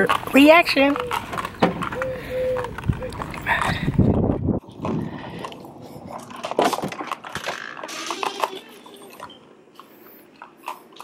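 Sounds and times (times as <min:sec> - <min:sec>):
front door opening: 0:01.0 - 0:03.5, 0:06.1 - 0:09.6.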